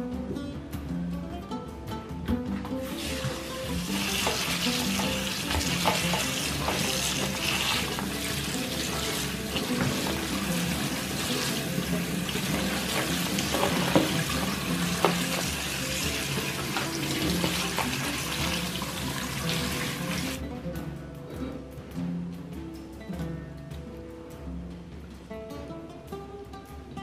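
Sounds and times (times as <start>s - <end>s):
cabbage rinsed in plastic colander: 2.9s - 20.4s
tap running into metal sink: 3.0s - 20.4s.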